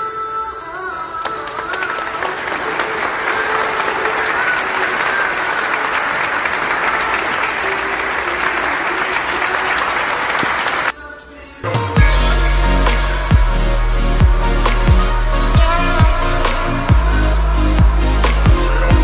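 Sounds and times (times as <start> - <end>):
applause: 1.2 - 10.9.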